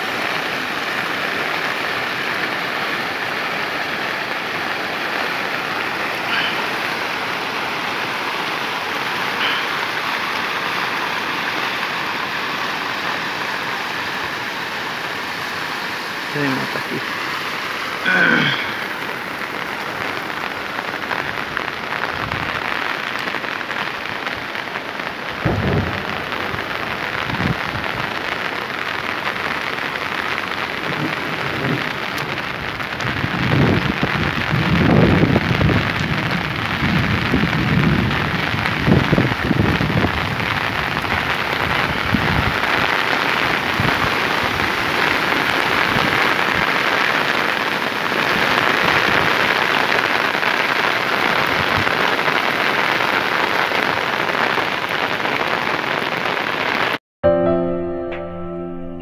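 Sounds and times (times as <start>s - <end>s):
steady rain falling: 0.0s - 57.0s
low rumbles: 25.3s - 28.2s.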